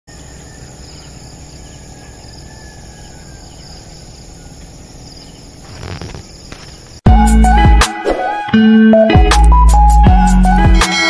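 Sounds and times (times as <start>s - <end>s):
insects chirping: 0.1s - 7.0s
rustle: 5.6s - 7.0s.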